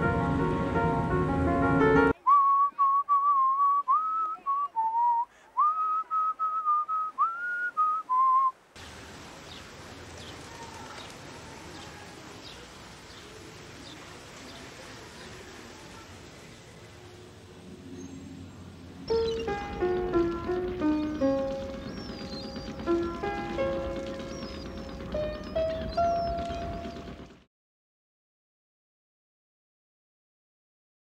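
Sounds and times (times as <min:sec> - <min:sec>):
outdoor background hiss: 0:00.0 - 0:27.4
person whistling a tune: 0:02.2 - 0:08.5
bird chirps: 0:19.0 - 0:27.3.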